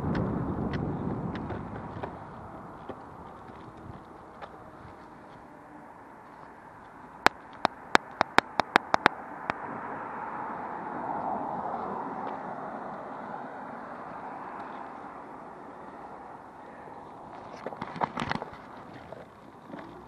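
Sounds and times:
skateboard rolling on road: 0:00.0 - 0:20.0
sharp clicks: 0:07.2 - 0:09.6.

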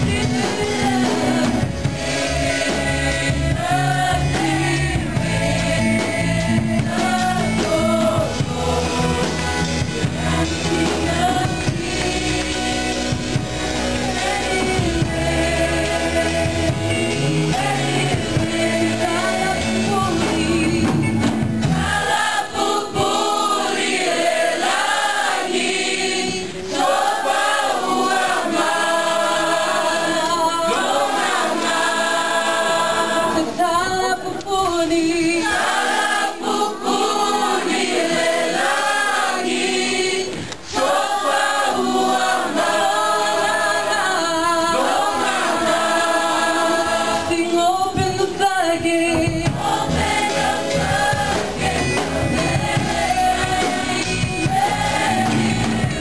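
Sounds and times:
choir singing: 0:00.0 - 0:56.0
woman singing into microphone: 0:33.4 - 0:35.4, 0:47.2 - 0:49.9.

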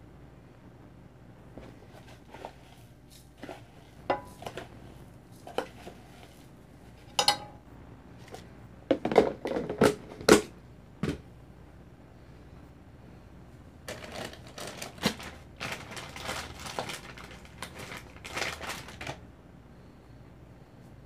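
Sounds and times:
utensil knocking on frying pan: 0:04.1 - 0:04.6, 0:07.2 - 0:07.6.

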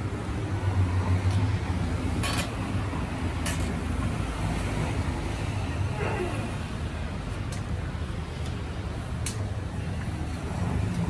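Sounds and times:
street background hum: 0:00.0 - 0:11.0.

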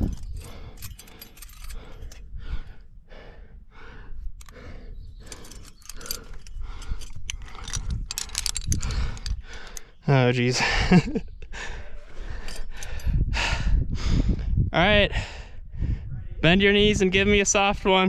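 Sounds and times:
carabiners clinking on chains: 0:00.0 - 0:02.3, 0:04.4 - 0:10.6, 0:12.2 - 0:13.2
person panting hard: 0:00.0 - 0:10.0, 0:10.6 - 0:16.1.

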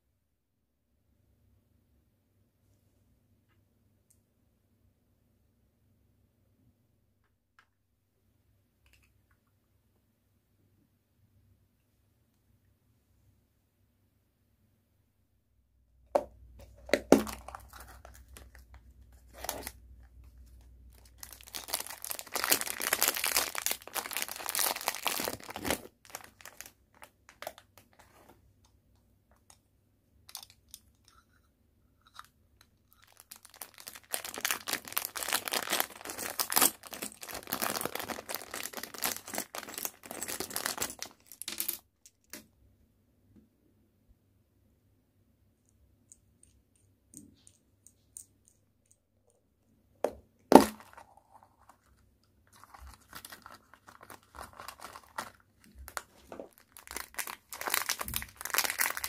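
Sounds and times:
plastic wrapping crinkling and tearing: 0:16.8 - 0:28.1, 0:33.0 - 0:41.7, 0:52.5 - 0:59.0
plastic pieces clicking: 0:30.3 - 0:31.3.

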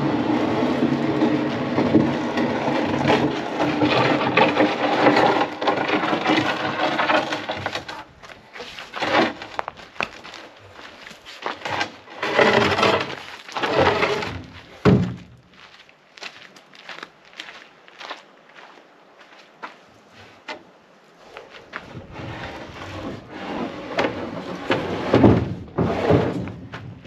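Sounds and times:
wood scraping on truck bed: 0:00.0 - 0:15.5, 0:21.4 - 0:27.0
wooden knocks and clunks: 0:00.8 - 0:15.5, 0:23.9 - 0:27.0.

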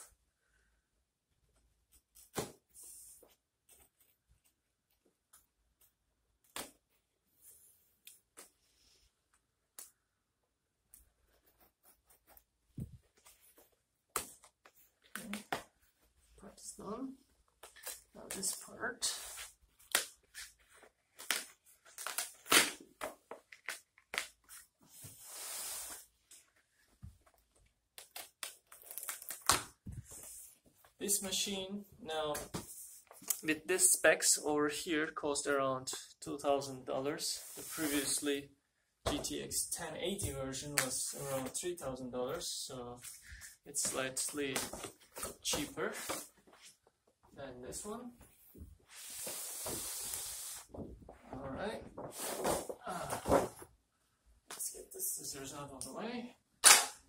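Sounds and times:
cardboard box tape ripping: 0:21.2 - 0:22.8.

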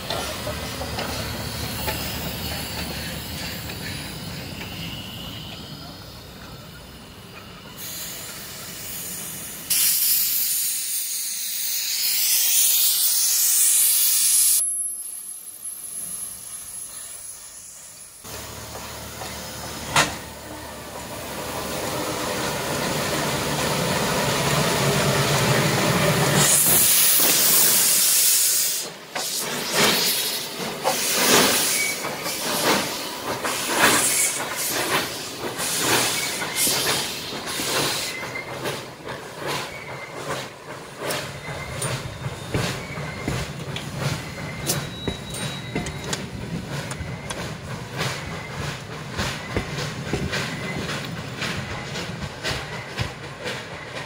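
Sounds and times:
steam locomotive hissing steam: 0:00.0 - 0:54.0
wheels clicking over rail joints: 0:30.6 - 0:54.0.

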